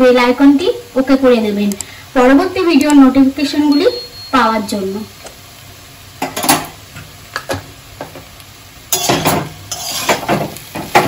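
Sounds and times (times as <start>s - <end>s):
spatula scraping a pan: 8.9s - 11.0s.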